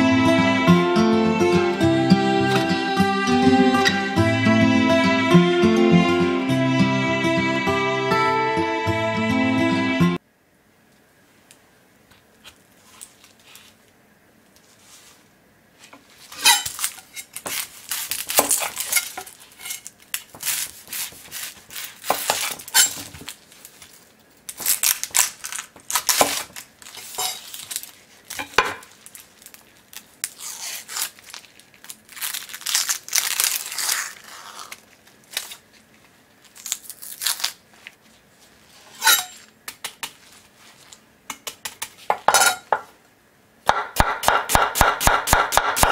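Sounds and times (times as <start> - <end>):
onion skin crackling: 16.0 - 42.2
knife cutting onion on wooden board: 16.4 - 23.1, 26.0 - 27.4, 43.7 - 45.9.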